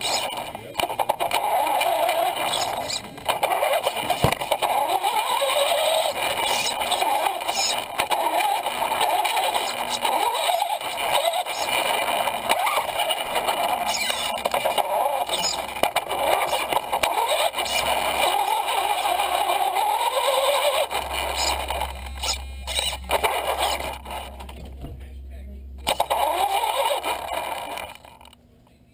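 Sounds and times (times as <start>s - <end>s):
toy truck motor whining: 0.0s - 24.5s, 25.8s - 28.4s.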